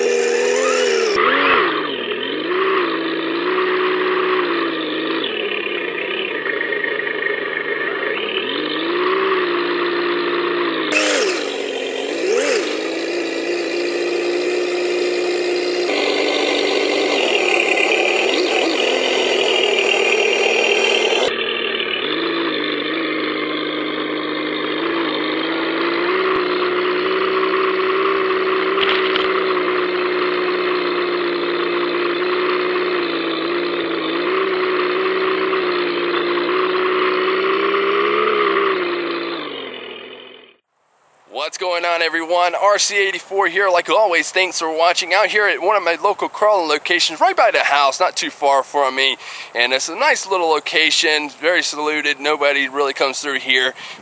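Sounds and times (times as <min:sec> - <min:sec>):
simulated engine from small speaker: 0:00.0 - 0:40.7.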